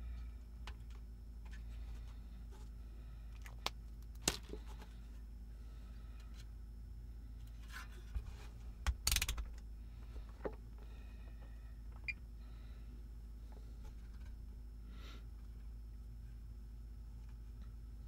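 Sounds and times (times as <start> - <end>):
steady low hum: 0.0 - 18.0
sharp small clicks: 8.8 - 9.6.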